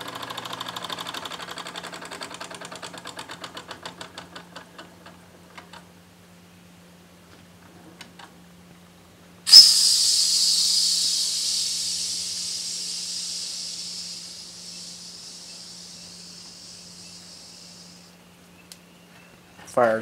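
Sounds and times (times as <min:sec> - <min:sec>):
steam hissing from boiler: 0:09.5 - 0:18.2.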